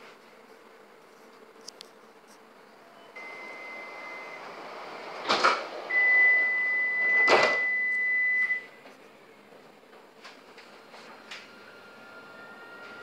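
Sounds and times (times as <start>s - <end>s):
high door-closing warning tone: 3.0s - 4.6s, 5.4s - 8.8s.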